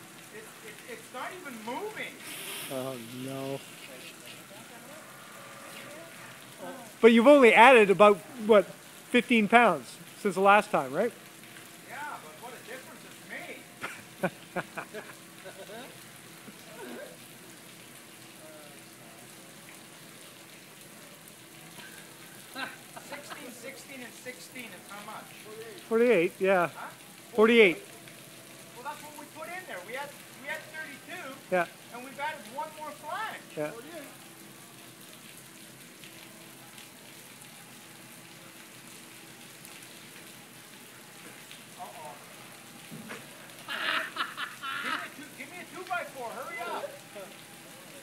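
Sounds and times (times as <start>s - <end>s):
water hissing into bucket: 1.4s - 6.7s.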